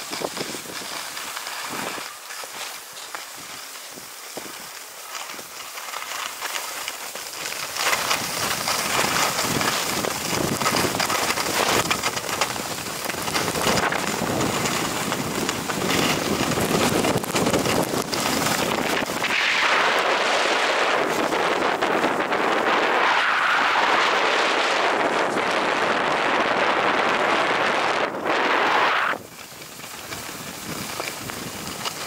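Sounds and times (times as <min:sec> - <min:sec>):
skis scraping over snow: 0:00.0 - 0:32.0
wind on microphone: 0:08.0 - 0:32.0.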